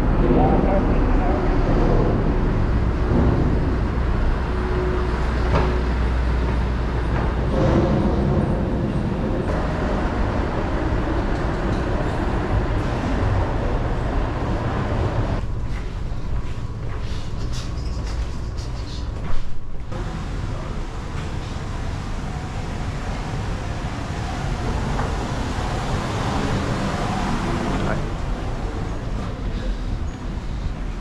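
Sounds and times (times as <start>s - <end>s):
ship machinery rumble: 0.0s - 31.0s.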